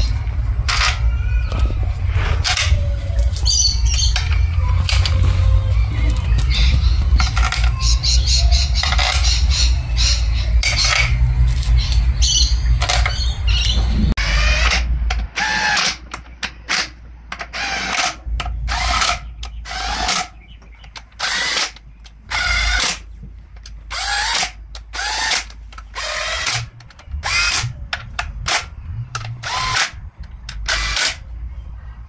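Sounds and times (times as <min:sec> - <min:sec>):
drill-driver motor whine: 0:12.8 - 0:16.0, 0:17.5 - 0:20.3, 0:23.9 - 0:27.8, 0:28.5 - 0:30.0, 0:30.6 - 0:31.2.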